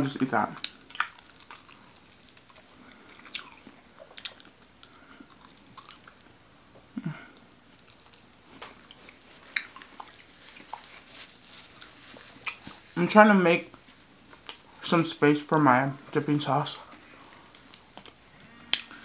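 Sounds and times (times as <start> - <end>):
chewing food: 0.4 - 13.0, 13.7 - 14.8, 16.8 - 19.0
mouth smacks and clicks: 0.5 - 6.2, 17.4 - 18.9.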